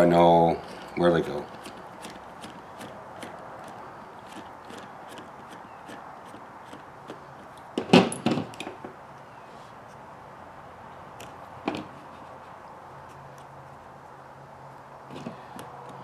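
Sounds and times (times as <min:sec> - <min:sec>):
small parts clicking and knocking: 0:00.6 - 0:08.9, 0:15.1 - 0:16.0.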